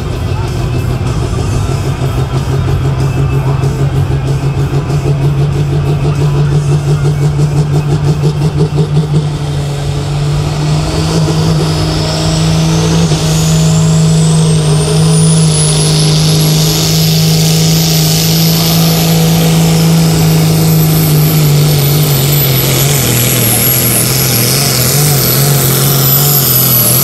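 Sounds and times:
diesel engine revving: 0:00.0 - 0:27.0
turbocharger whine: 0:00.0 - 0:27.0.

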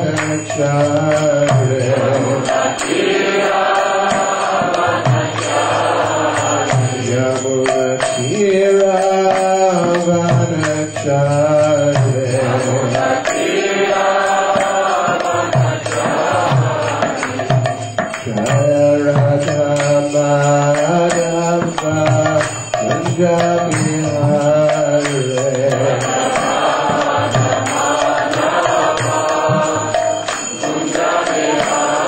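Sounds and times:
man chanting into a microphone: 0:00.0 - 0:02.5, 0:07.0 - 0:13.0, 0:18.3 - 0:26.4
steady percussion beat: 0:00.0 - 0:32.0.

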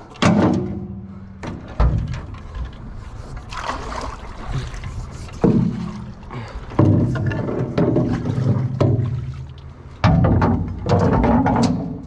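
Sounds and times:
paddles splashing in water: 0:02.4 - 0:11.4.

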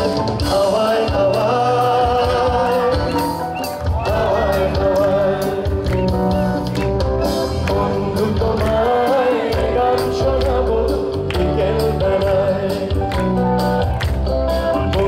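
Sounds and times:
drum kit: 0:00.0 - 0:15.0
electric guitar: 0:00.0 - 0:15.0
person singing: 0:00.4 - 0:06.6, 0:07.6 - 0:13.4.

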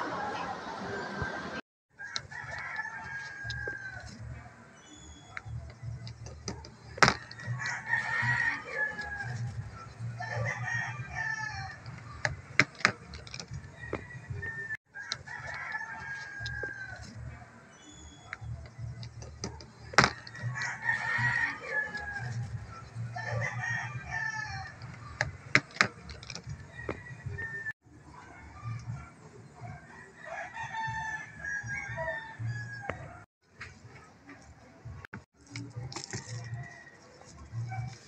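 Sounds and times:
rooster crowing: 0:02.0 - 0:04.5, 0:07.1 - 0:09.5, 0:10.1 - 0:11.9, 0:13.7 - 0:17.4, 0:20.2 - 0:22.4, 0:23.1 - 0:24.8, 0:26.6 - 0:27.7, 0:29.7 - 0:33.2.

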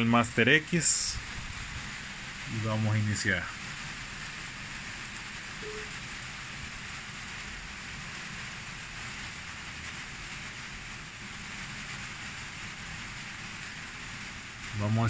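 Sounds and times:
steady background hiss: 0:00.0 - 0:15.0
short faint tone: 0:05.6 - 0:06.0.

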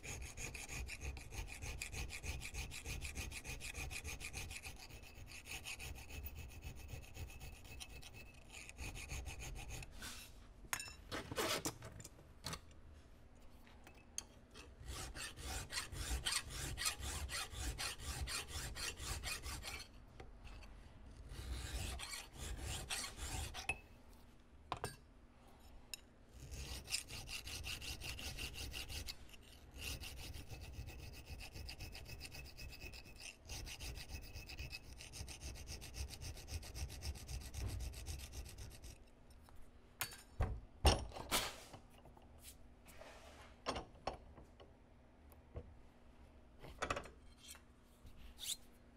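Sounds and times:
file strokes on metal: 0:00.0 - 0:10.4, 0:14.6 - 0:23.8, 0:26.3 - 0:39.4, 0:47.3 - 0:48.7.

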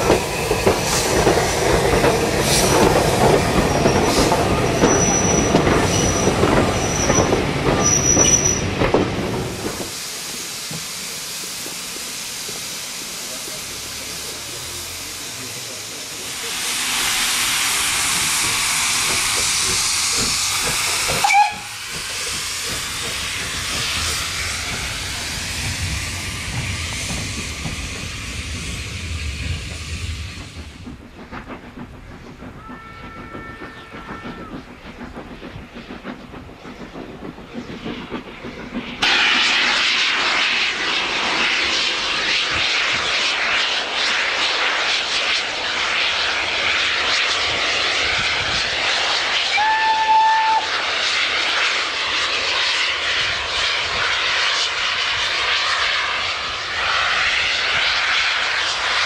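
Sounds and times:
passing train rushing: 0:00.0 - 0:59.0
steam locomotive hissing: 0:00.0 - 0:59.0
short steam whistle blast: 0:21.1 - 0:21.8, 0:49.4 - 0:50.8.

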